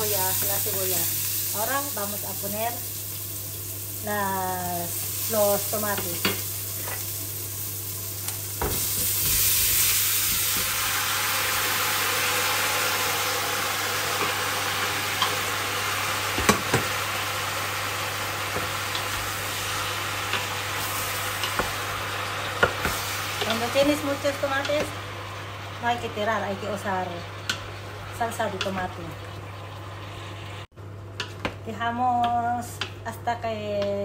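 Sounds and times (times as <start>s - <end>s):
onions sizzling in oil: 0.0s - 30.7s.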